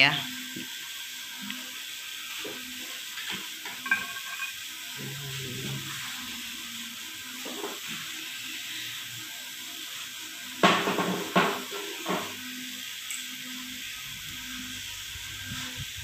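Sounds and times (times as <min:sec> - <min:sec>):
metal parts clattering: 0:03.8 - 0:04.5
steady hiss: 0:04.4 - 0:16.0.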